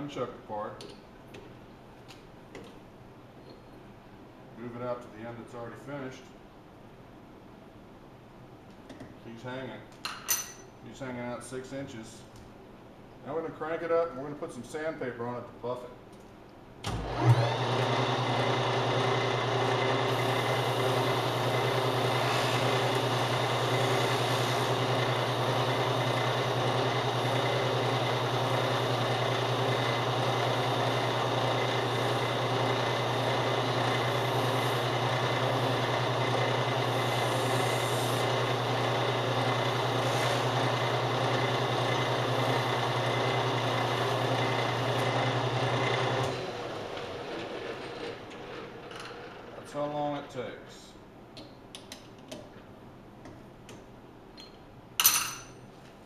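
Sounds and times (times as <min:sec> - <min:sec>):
metal lathe whining: 0:16.9 - 0:49.6
sandpaper buffing spinning metal: 0:20.2 - 0:46.2.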